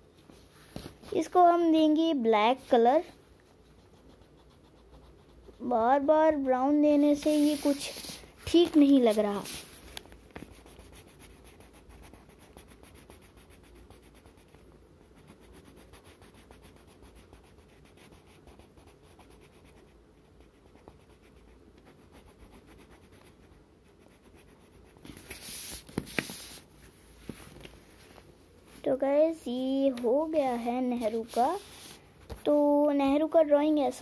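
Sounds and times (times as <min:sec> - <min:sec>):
crayon scratching on paper: 0:02.6 - 0:09.8, 0:10.4 - 0:26.7, 0:30.0 - 0:32.6
paper rustling: 0:07.2 - 0:10.6, 0:25.0 - 0:26.6.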